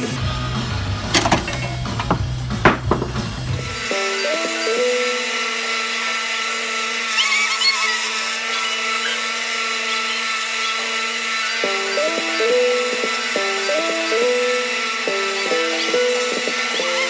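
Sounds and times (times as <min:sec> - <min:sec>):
belt sander grinding wood: 0:02.9 - 0:17.0.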